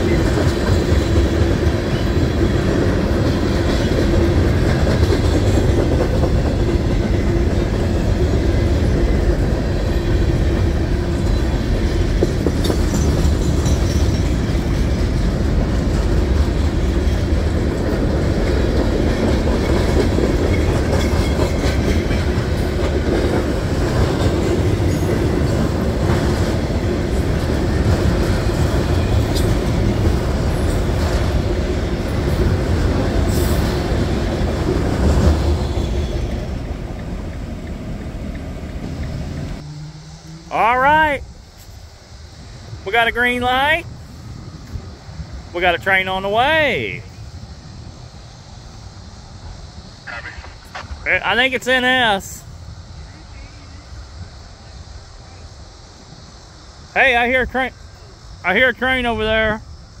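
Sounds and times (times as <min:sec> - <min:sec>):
wheels clacking over rail joints: 0:00.0 - 0:39.7
freight train wheels rumbling on rails: 0:00.0 - 1:00.0.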